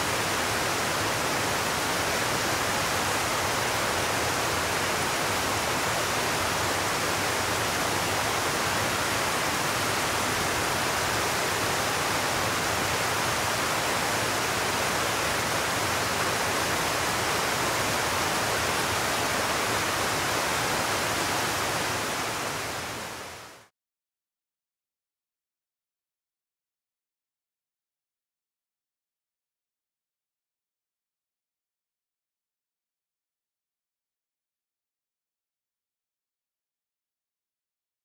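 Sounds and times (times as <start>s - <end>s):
mountain stream rushing: 0.0s - 23.7s.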